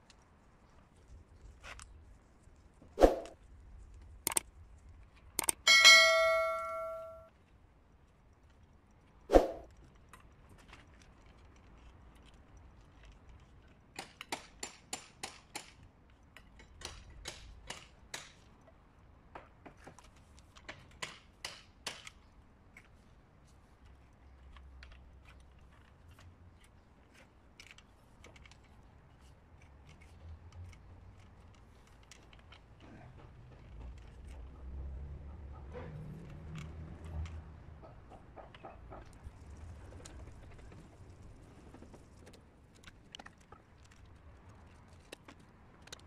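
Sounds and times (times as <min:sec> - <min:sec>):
plastic clicks: 0:04.3 - 0:04.5, 0:05.2 - 0:05.6.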